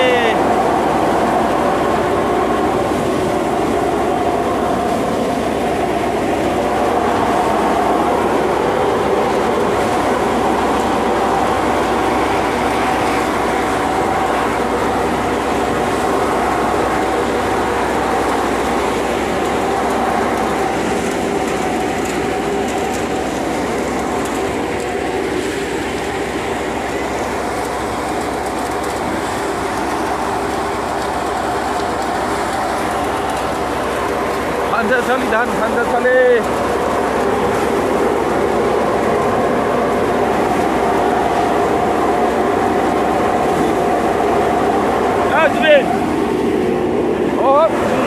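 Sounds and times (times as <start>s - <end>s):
threshing machine humming: 0.0s - 48.0s.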